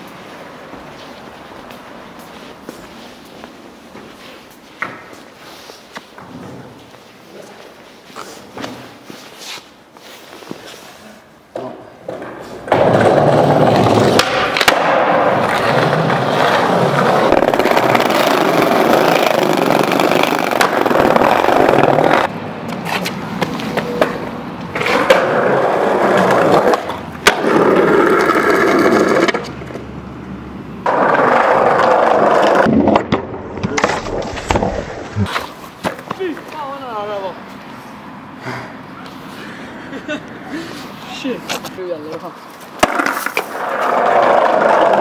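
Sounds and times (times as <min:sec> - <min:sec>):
skateboard wheels rolling on pavement: 0:00.0 - 0:45.0
skateboard clacks: 0:11.5 - 0:29.9, 0:41.5 - 0:45.0.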